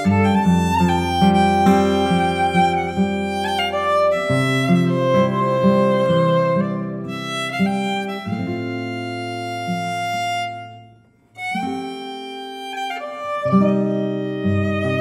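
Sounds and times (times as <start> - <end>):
fiddle playing slow notes: 0.0 - 15.0.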